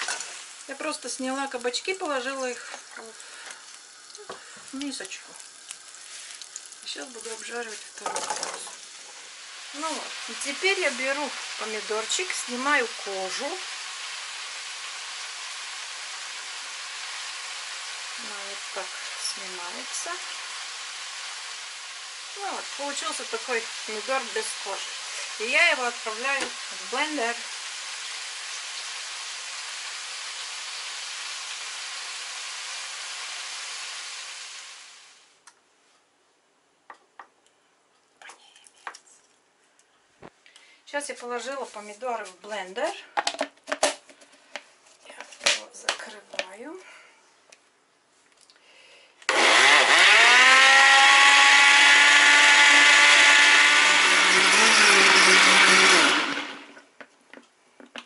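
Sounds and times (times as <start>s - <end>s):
food sizzling in a pan: 0.0s - 35.4s, 49.4s - 56.8s
blender motor whining: 49.3s - 56.8s.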